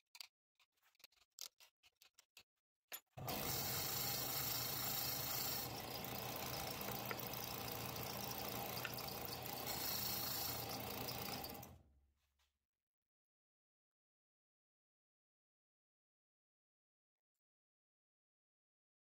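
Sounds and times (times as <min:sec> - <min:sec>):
disc sander running: 0:03.2 - 0:11.8.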